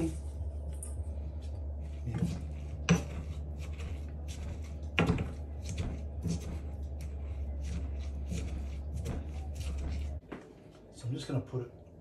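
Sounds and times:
pestle grinding in stone mortar: 0:01.5 - 0:10.2.

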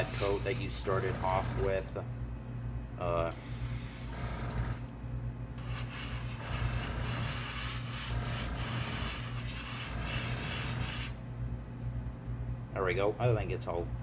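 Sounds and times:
constant low hum: 0:00.0 - 0:14.0
airbrush spraying hiss: 0:05.6 - 0:11.2.

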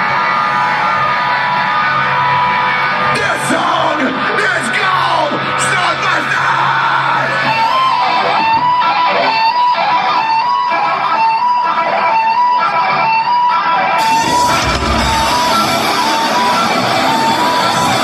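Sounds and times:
heavy metal band with drums: 0:00.0 - 0:18.0
electric guitar riff: 0:06.8 - 0:18.0.

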